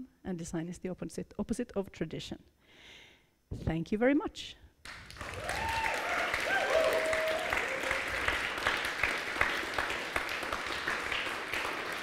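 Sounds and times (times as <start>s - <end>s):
audience applauding: 4.9s - 12.0s.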